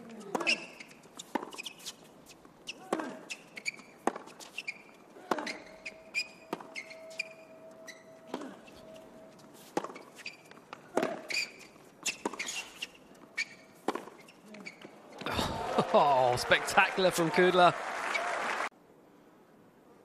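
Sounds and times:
racquets hitting tennis ball: 0:00.0 - 0:06.9, 0:09.6 - 0:15.0
tennis shoes squeaking on court: 0:00.0 - 0:15.2.

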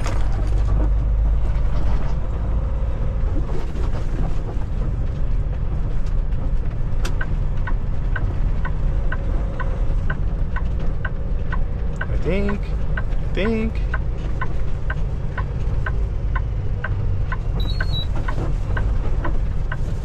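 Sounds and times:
truck engine rumbling: 0:00.0 - 0:20.0
turn signal ticking: 0:05.5 - 0:20.0.

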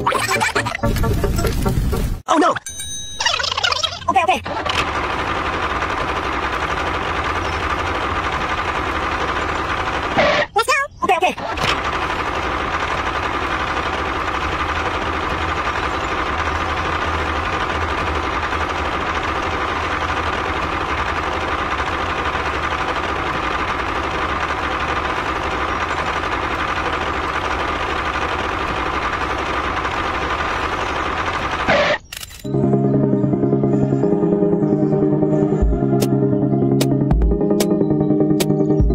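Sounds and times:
toy tractor motor running: 0:03.3 - 0:32.5.

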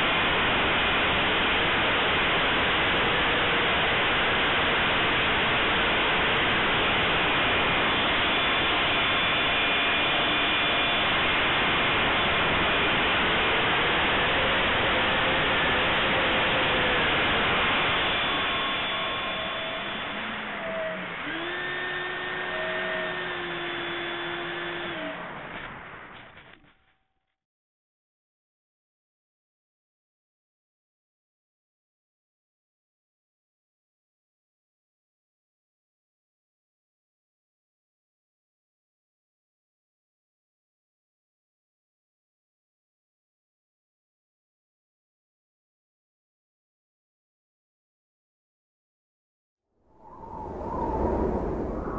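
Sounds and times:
fan whine: 0:00.0 - 0:26.7, 0:49.9 - 0:51.9
rush of fan and passing air: 0:49.9 - 0:51.9.

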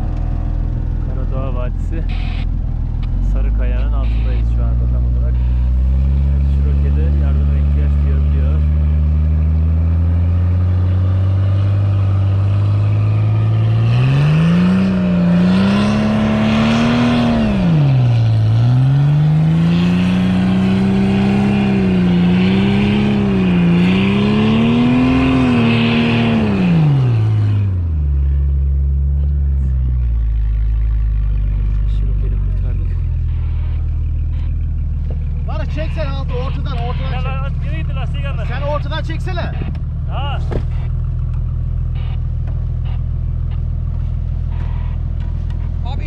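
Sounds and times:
car engine revving: 0:00.0 - 0:46.0
tyres churning through snow: 0:03.2 - 0:28.5.

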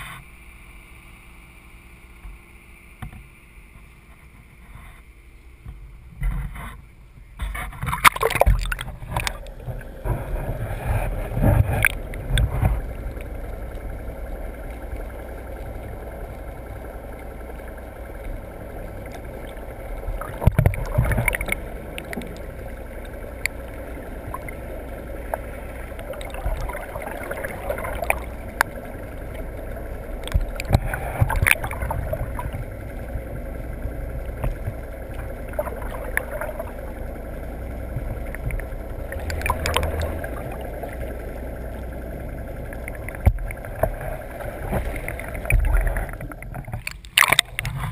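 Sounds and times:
steady low rumble: 0:00.0 - 0:47.9
sea water sloshing against boat: 0:03.1 - 0:47.9
splashes and knocks: 0:07.4 - 0:13.3, 0:18.9 - 0:23.6, 0:25.3 - 0:29.4, 0:30.2 - 0:33.4, 0:34.3 - 0:37.0, 0:37.9 - 0:41.2, 0:42.7 - 0:47.9.

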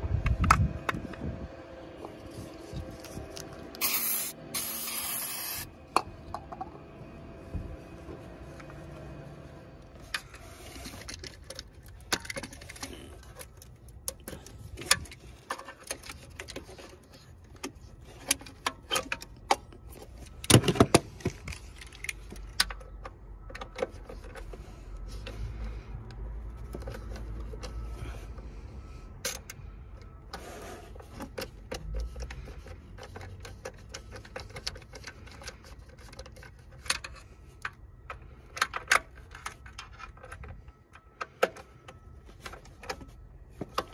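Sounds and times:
parts clicking and rattling: 0:10.0 - 0:28.4, 0:29.2 - 0:43.9.

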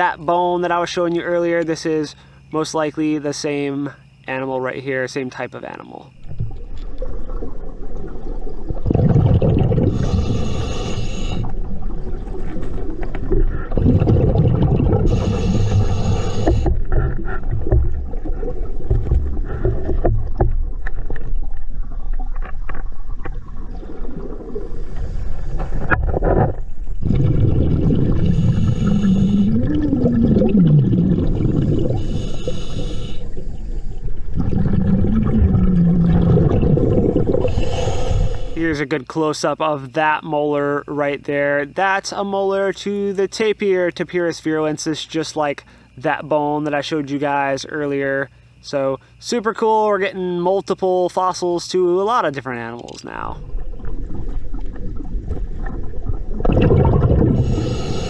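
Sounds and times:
regulator bubbles gurgling underwater: 0:06.1 - 0:38.8, 0:53.1 - 0:58.0
regulator breathing hiss: 0:09.8 - 0:11.6, 0:15.0 - 0:17.0, 0:24.7 - 0:25.9, 0:28.2 - 0:29.6, 0:31.6 - 0:34.0, 0:37.4 - 0:38.8, 0:57.4 - 0:58.0.

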